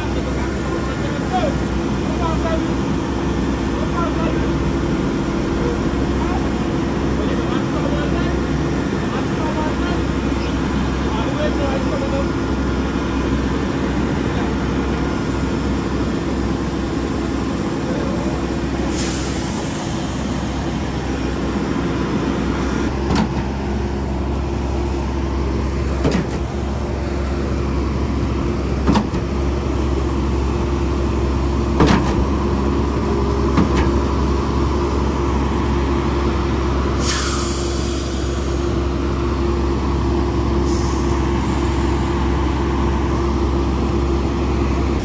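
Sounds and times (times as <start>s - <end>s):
truck engine running: 0.0s - 45.0s
brief hiss: 37.0s - 38.4s.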